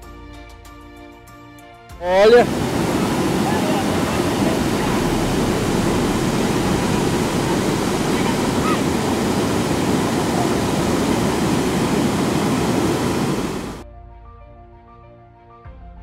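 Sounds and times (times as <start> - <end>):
waterfall rushing: 2.1 - 13.8.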